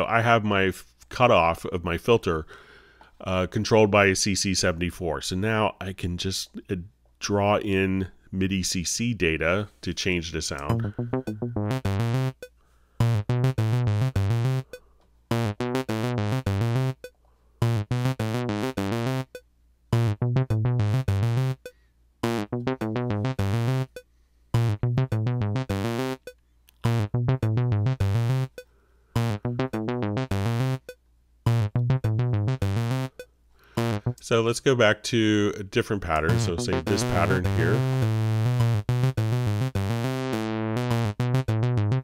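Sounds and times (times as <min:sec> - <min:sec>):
synthesizer sequence: 0:10.7 - 0:19.4, 0:22.2 - 0:24.0, 0:24.6 - 0:26.3, 0:29.2 - 0:33.2, 0:36.2 - 0:42.0.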